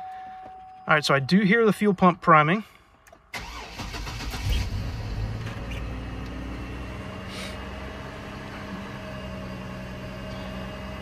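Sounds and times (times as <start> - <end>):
car engine starting and idling: 3.0 - 11.0.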